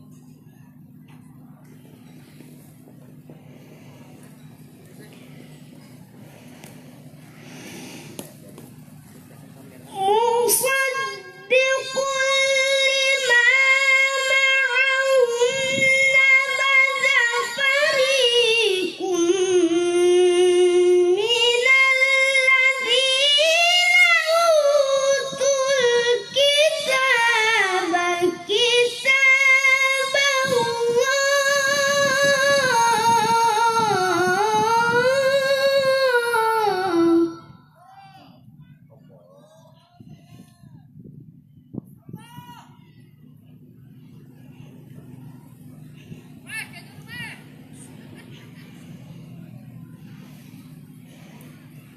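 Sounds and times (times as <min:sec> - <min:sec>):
boy reciting melodically: 0:09.4 - 0:37.7.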